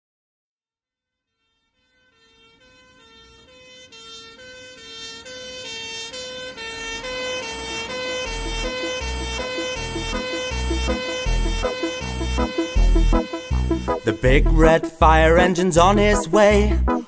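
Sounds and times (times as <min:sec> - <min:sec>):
two-tone emergency siren: 0:01.2 - 0:14.3
low thumps: 0:08.3 - 0:14.7.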